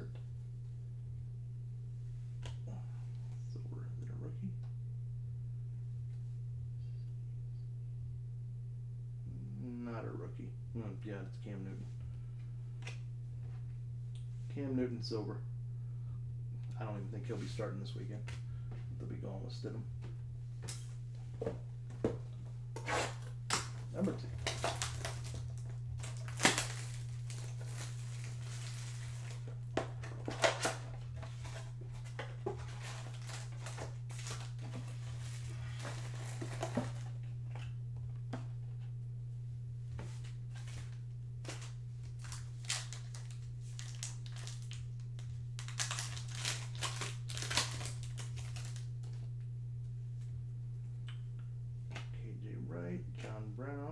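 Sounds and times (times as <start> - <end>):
steady low hum: 0.0 - 53.9
card pack ripped open: 22.8 - 29.4, 30.2 - 37.1, 41.5 - 49.2
plastic wrapping crinkling and tearing: 22.8 - 37.2, 40.5 - 49.2.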